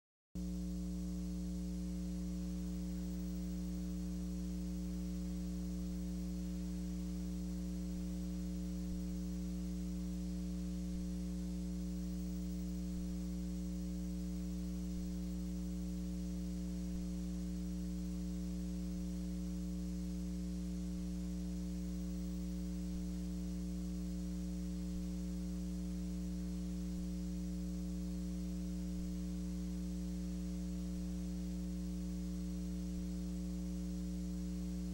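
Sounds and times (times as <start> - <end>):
electrical mains hum: 0.4 - 34.9.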